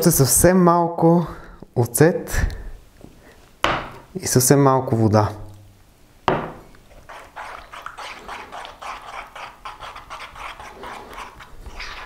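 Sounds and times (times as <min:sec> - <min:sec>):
spoon stirring thick sauce in bowl: 0:06.6 - 0:12.0.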